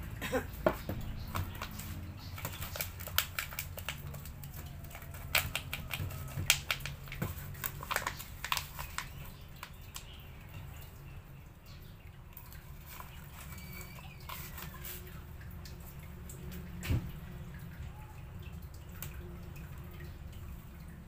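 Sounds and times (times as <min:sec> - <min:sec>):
plastic plant pot crackling: 0:00.6 - 0:10.3, 0:12.4 - 0:15.2.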